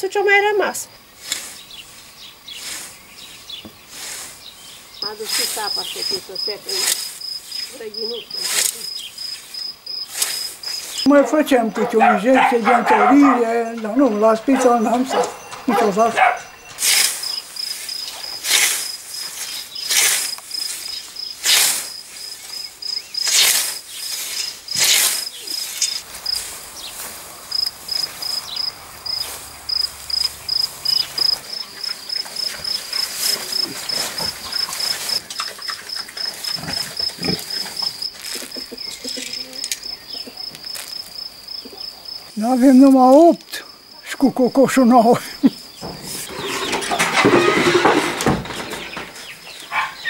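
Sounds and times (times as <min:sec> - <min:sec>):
cricket chirping: 0:00.0 - 0:50.0
hoe chopping into soil: 0:18.3 - 0:20.4, 0:21.4 - 0:22.0, 0:23.2 - 0:26.0.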